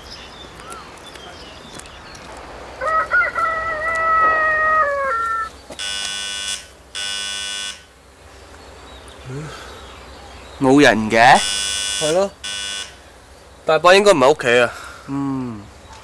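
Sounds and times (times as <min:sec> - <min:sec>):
rooster crowing: 0:02.6 - 0:06.4.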